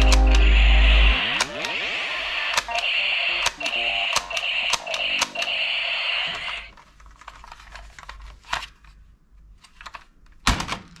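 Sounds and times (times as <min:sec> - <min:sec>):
high buzzing tone: 0:00.0 - 0:01.4.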